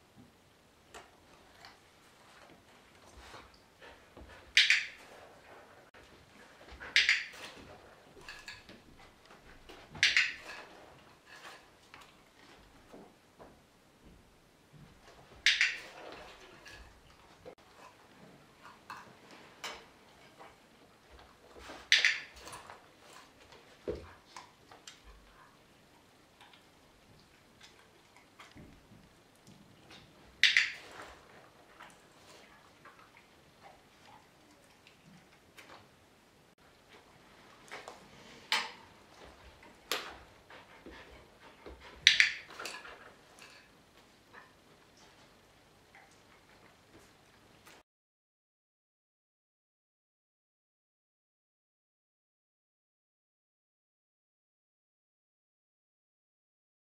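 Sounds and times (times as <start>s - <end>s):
dog-training clicker clicks: 15.4s - 15.8s, 30.4s - 30.8s.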